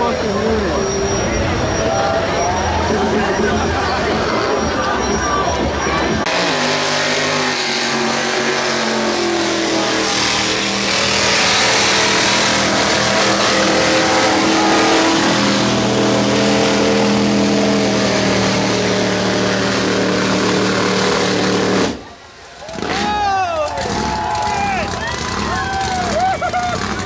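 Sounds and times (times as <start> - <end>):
truck engine revving hard: 0.0 - 27.0.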